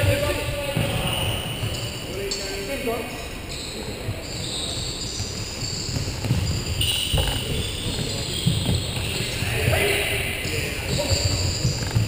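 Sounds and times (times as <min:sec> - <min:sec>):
feet thudding on wooden court: 0:04.1 - 0:10.1.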